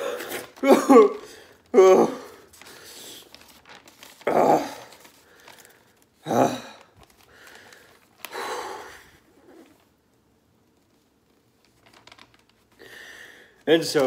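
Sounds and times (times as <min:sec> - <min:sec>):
man sobbing: 0:00.0 - 0:02.5, 0:04.2 - 0:05.1, 0:06.2 - 0:06.9
man breathing quietly: 0:02.3 - 0:03.6, 0:05.0 - 0:09.8, 0:12.7 - 0:13.6.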